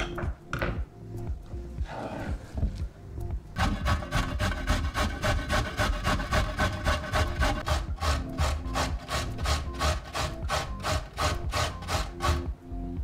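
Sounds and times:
carrot grated on metal grater: 0:03.6 - 0:12.4.

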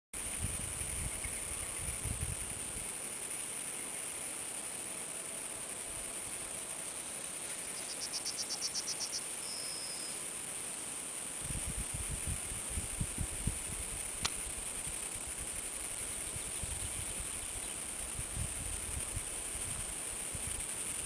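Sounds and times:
low rumbling on microphone: 0:00.2 - 0:02.8
insect rattling trill: 0:00.2 - 0:21.0
insects buzzing: 0:00.2 - 0:21.0.

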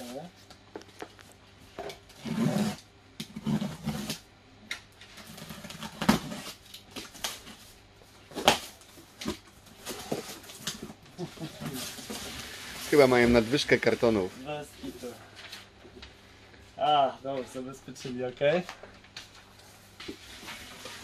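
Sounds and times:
box cutter slitting packing tape: 0:02.2 - 0:04.2, 0:05.2 - 0:07.4
cardboard scraping rasps: 0:02.2 - 0:04.2
sharp cardboard cracks: 0:08.3 - 0:09.4.

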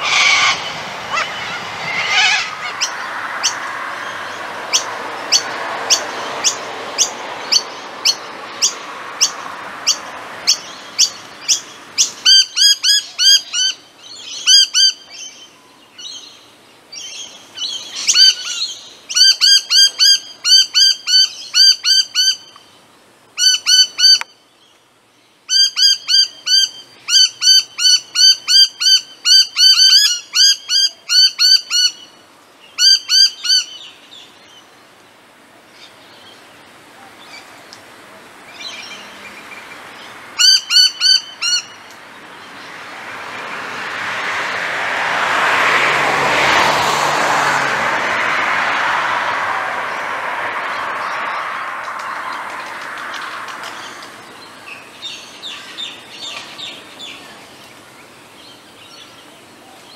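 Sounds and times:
birds calling with sharp high notes: 0:00.0 - 0:34.7, 0:38.5 - 0:42.8
steady background hiss: 0:00.0 - 0:45.3, 0:47.7 - 0:59.9.

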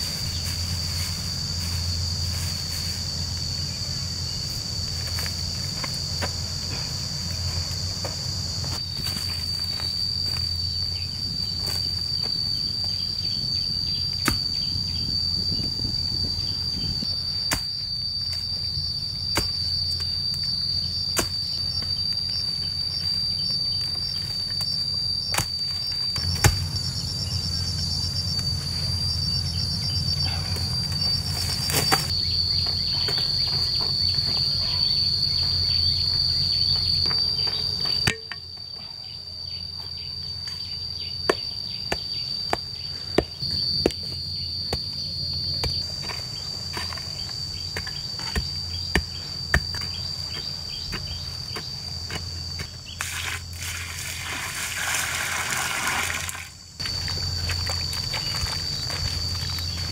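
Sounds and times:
insects droning and chirping: 0:00.0 - 0:59.9
pick striking dry clay: 0:26.2 - 0:26.7, 0:45.6 - 0:53.4.

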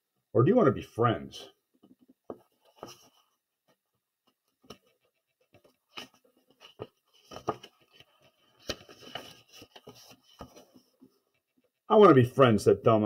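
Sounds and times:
page turning: 0:02.5 - 0:03.3, 0:04.4 - 0:11.1.

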